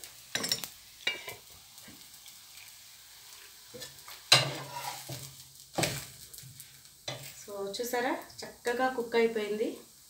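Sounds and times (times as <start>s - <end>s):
food frying in butter: 0.0s - 10.0s
spatula scraping pan: 3.7s - 6.1s
slap of food flipped onto pan: 3.8s - 6.2s.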